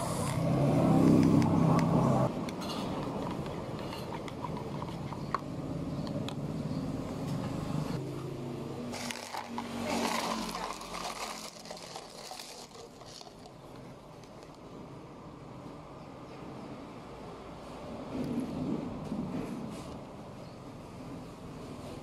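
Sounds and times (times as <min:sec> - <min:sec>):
ice cubes clattering into cup: 0:08.9 - 0:14.5.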